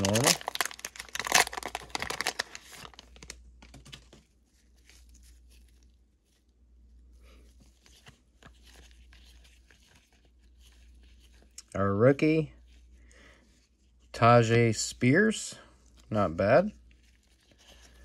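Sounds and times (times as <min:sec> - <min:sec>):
wrapper crinkling and tearing: 0:00.0 - 0:04.1
cards rustling and sliding: 0:07.4 - 0:11.6.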